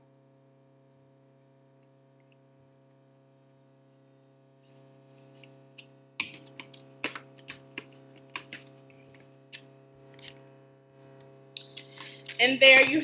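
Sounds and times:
refrigerator hum: 0.0 - 13.0
hands tapping paper on plate: 6.2 - 9.3.

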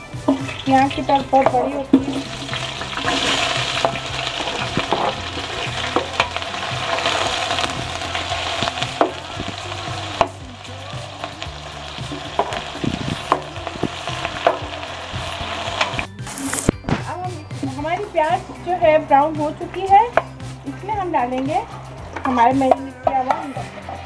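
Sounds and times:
onions sizzling in hot oil: 0.0 - 16.7.

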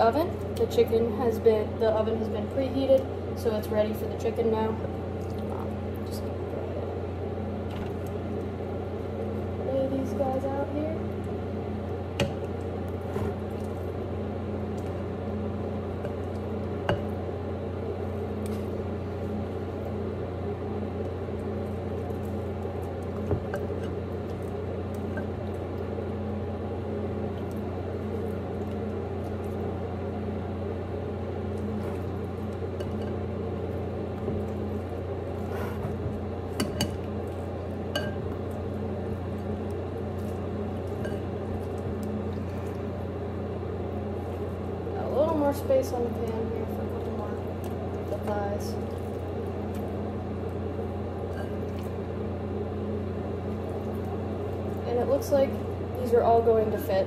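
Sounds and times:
electric hum of oven: 0.0 - 57.0
soft wet handling of meat: 27.2 - 45.0, 46.0 - 54.9.

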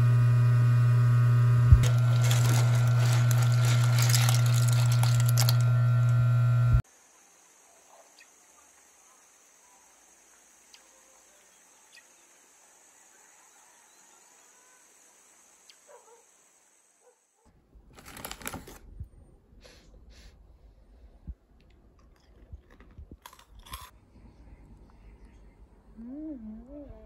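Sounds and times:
plastic snack packet crinkling: 1.8 - 6.1, 17.9 - 18.8.

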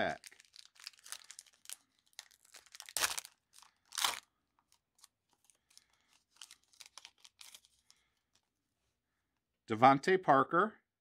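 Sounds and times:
foil wrapper ripping: 0.0 - 4.3, 6.2 - 7.8
wrapper crinkling: 0.0 - 8.4.

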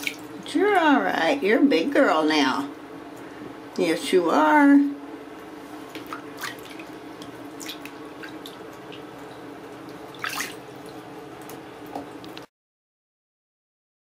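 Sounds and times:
water dripping: 0.0 - 0.5, 5.8 - 12.5
water running and splashing: 0.0 - 0.5, 5.8 - 12.5.

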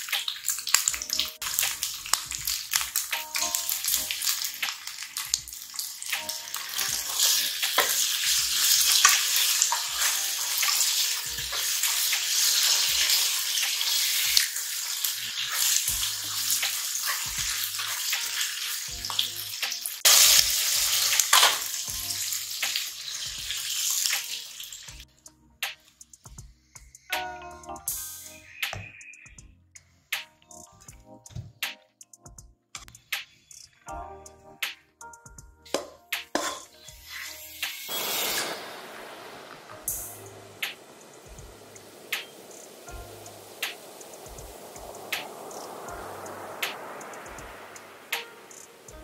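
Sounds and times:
sauce sizzling in a frying pan: 0.0 - 25.0, 36.4 - 49.0.

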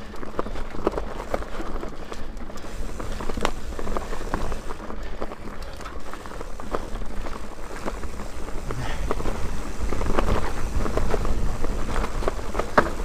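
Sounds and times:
bike clicks and rattles: 0.0 - 13.0
bike tyres rolling on dirt: 0.0 - 13.0
wind rumble on microphone: 7.9 - 13.0.

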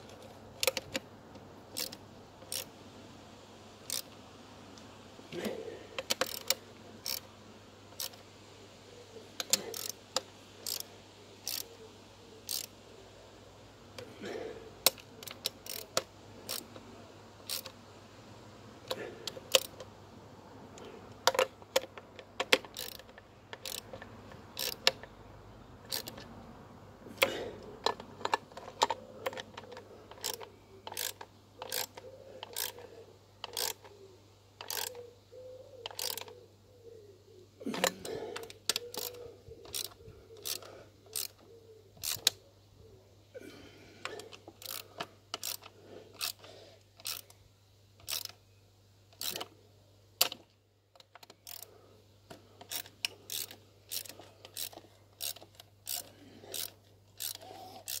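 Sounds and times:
socket ratchet clicking: 0.6 - 1.0, 1.7 - 2.7, 3.8 - 4.2, 6.0 - 7.3, 8.0 - 8.2, 9.4 - 11.7, 12.4 - 12.8, 14.8 - 16.8, 17.4 - 17.8, 18.8 - 19.9, 21.3 - 25.1, 25.9 - 26.3, 27.2 - 33.9, 34.6 - 35.0, 35.9 - 36.3, 38.4 - 41.4, 42.0 - 42.4, 44.1 - 47.4, 48.0 - 48.4, 49.1 - 49.5, 50.2 - 51.7, 52.6 - 58.0.

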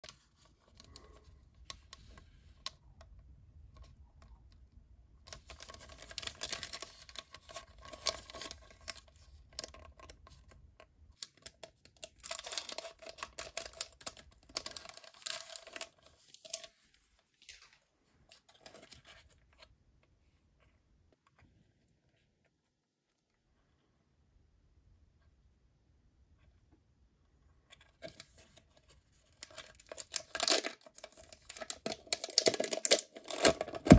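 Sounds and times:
plastic wrappers crinkling: 11.2 - 19.0, 29.2 - 33.9
packet tearing open: 29.4 - 33.9.

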